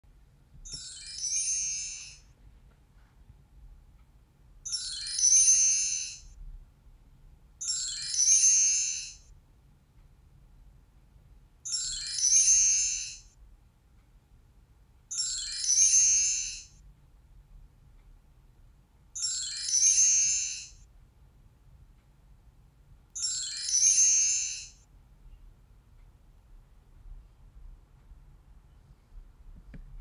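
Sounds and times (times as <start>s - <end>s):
high chime: 0.6s - 2.4s, 4.6s - 6.4s, 7.6s - 9.3s, 11.6s - 13.4s, 15.1s - 16.8s, 19.2s - 20.9s, 23.2s - 24.9s.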